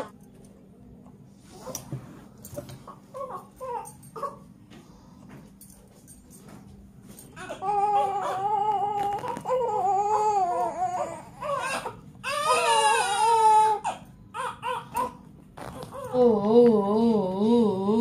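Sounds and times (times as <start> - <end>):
baby crying: 7.4 - 16.2.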